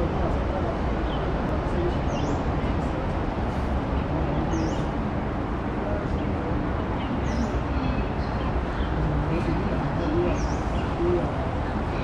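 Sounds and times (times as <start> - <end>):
bird chirping: 4.4 - 4.9, 7.0 - 11.2.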